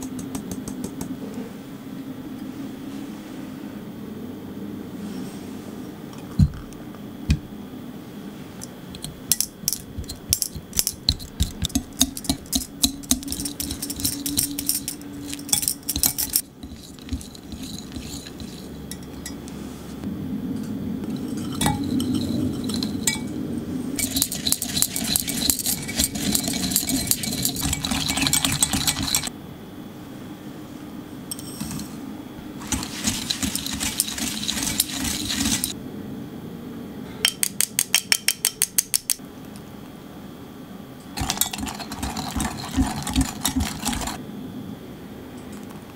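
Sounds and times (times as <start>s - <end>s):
whisk scraping glass: 10.0s - 19.4s, 21.2s - 23.2s, 24.0s - 29.3s, 32.6s - 35.8s, 41.2s - 44.2s.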